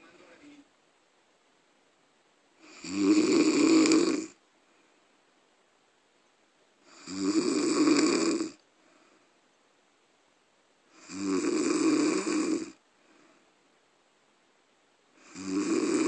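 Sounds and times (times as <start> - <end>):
person snoring: 2.6 - 4.4, 6.9 - 8.6, 10.9 - 12.8, 15.2 - 16.0
faint breaths: 3.8 - 5.3, 8.1 - 9.7, 12.1 - 13.9.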